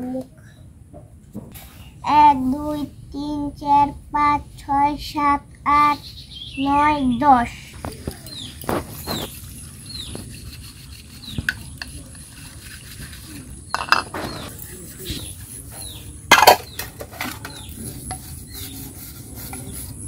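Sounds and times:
bird chirping: 0:05.7 - 0:12.1, 0:13.3 - 0:19.0
dishes clinking and scraping: 0:07.8 - 0:18.4
dishes clattering: 0:11.2 - 0:14.8, 0:15.8 - 0:17.7.

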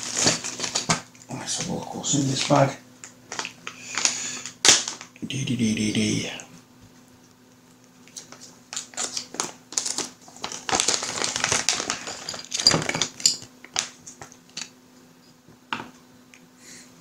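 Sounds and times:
plastic bag crinkling: 0:00.0 - 0:05.1, 0:08.2 - 0:14.4.

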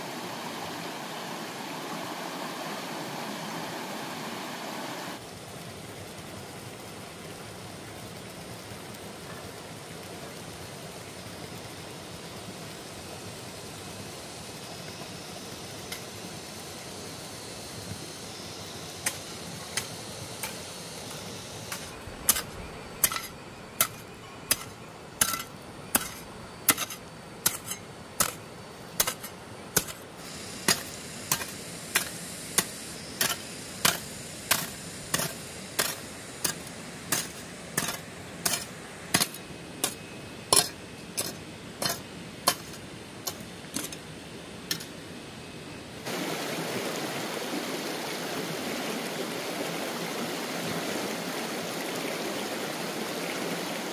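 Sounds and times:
faint steady hiss: 0:00.0 - 0:53.9.

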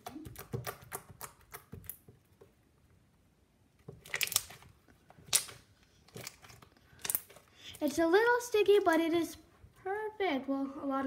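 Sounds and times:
slime clicking and popping: 0:00.0 - 0:02.1, 0:04.0 - 0:07.4
slime crackling when stretched: 0:04.0 - 0:07.9.

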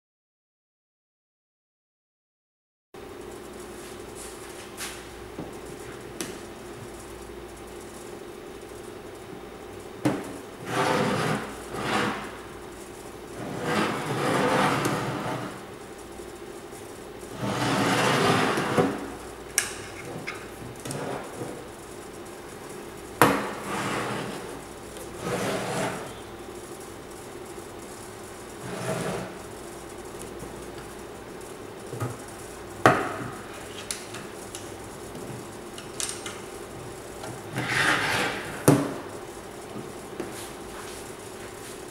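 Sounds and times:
wooden parts scraping: 0:10.6 - 0:12.4, 0:13.4 - 0:15.6, 0:23.2 - 0:26.2, 0:37.5 - 0:38.6.

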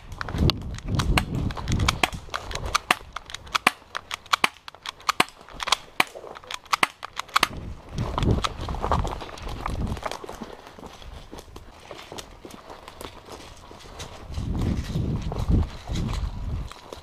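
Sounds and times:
airsoft pistols firing: 0:01.0 - 0:07.6
footsteps crunching through brush: 0:07.2 - 0:17.0.

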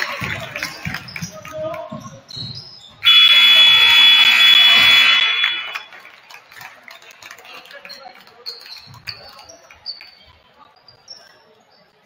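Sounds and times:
scoreboard buzzer blaring: 0:03.0 - 0:05.9.

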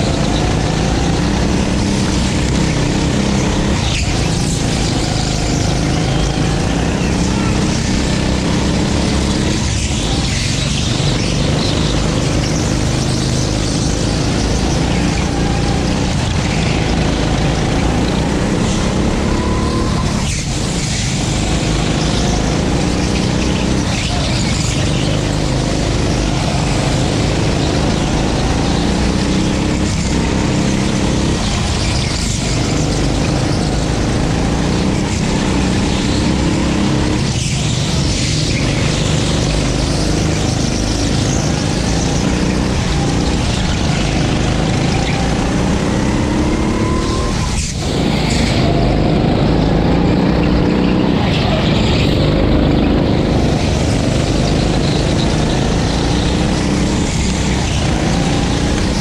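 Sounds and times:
go-kart engine running hard: 0:00.0 - 0:59.0.

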